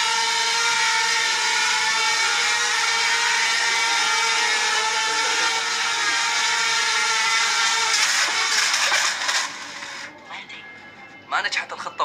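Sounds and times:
drone propellers whining: 0:00.0 - 0:10.2.

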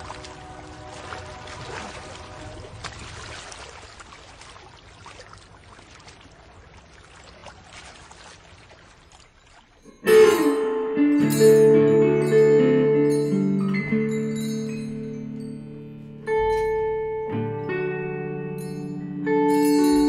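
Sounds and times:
river water lapping on pebbles: 0:00.0 - 0:10.5
music with ringing notes: 0:09.8 - 0:20.0.

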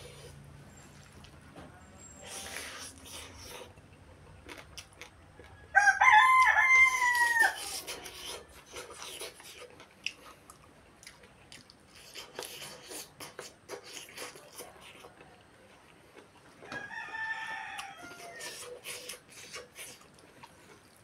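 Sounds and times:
chewing and eating by hand: 0:00.0 - 0:21.0
rooster crowing: 0:05.5 - 0:07.7, 0:16.6 - 0:18.6.

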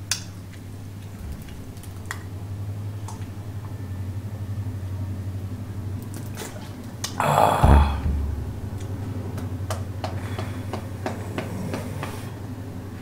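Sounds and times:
person breathing out loudly: 0:07.2 - 0:08.0.

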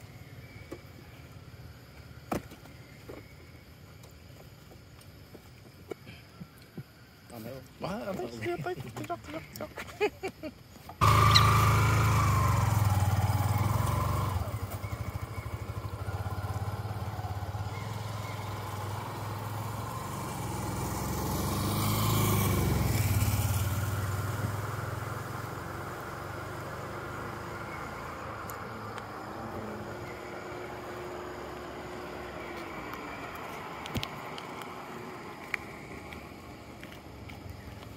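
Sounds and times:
vehicle engine running: 0:11.0 - 0:37.9
vehicle passing on road: 0:11.0 - 0:37.9.

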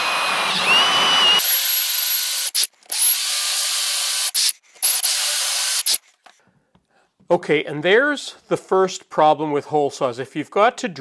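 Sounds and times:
cordless drill with hole saw: 0:00.0 - 0:06.1.

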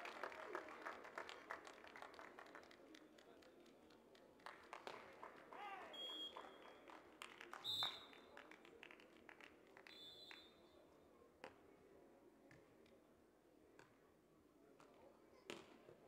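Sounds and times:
hand claps: 0:00.0 - 0:10.5.

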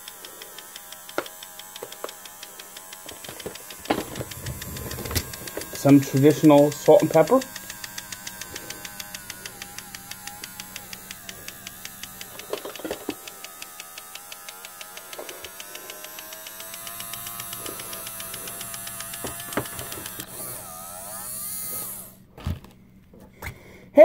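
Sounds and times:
steady hum: 0:00.0 - 0:24.0.

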